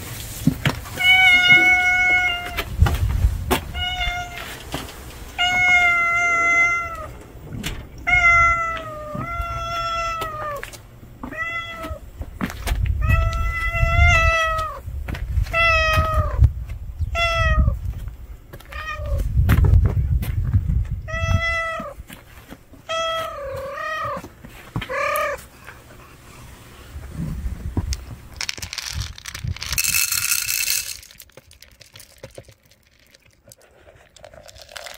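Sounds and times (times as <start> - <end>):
cat meowing loudly: 0.9 - 2.7, 3.7 - 4.6, 5.4 - 7.2, 8.0 - 12.0, 13.0 - 14.8, 15.5 - 16.4, 17.1 - 17.8, 18.7 - 19.2, 21.1 - 22.0.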